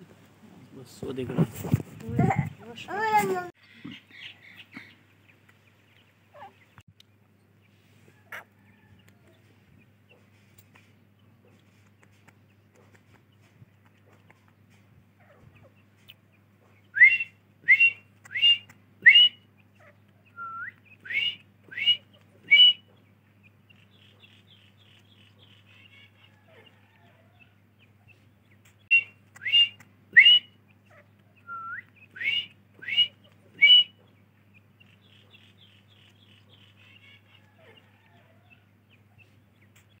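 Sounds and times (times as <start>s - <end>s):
faint chattering: 0.0s - 6.8s
bird rising whistled call: 16.9s - 19.4s, 20.3s - 22.8s, 28.9s - 30.6s, 31.4s - 34.0s.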